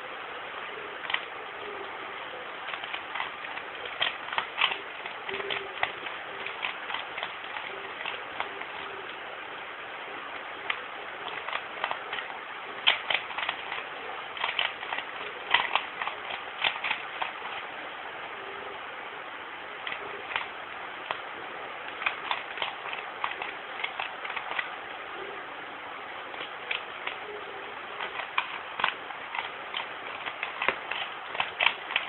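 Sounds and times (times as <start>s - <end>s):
steady hiss: 0.0s - 32.0s
puzzle cube clicking: 1.0s - 1.3s, 2.6s - 9.2s, 10.6s - 17.7s, 19.8s - 21.3s, 21.9s - 24.8s, 26.3s - 32.0s.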